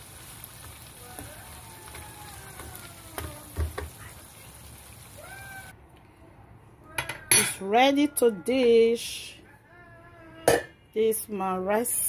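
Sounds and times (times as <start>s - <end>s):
sauce sizzling in a frying pan: 0.0s - 5.7s
wooden spoon knocking pan: 2.6s - 4.0s.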